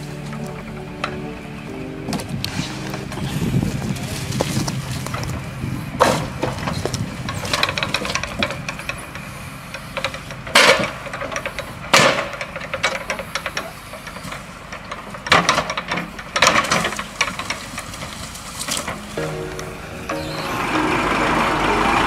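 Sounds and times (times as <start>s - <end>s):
truck engine running: 0.0s - 22.0s
logs clunking against grapple: 6.0s - 9.2s, 10.0s - 19.7s.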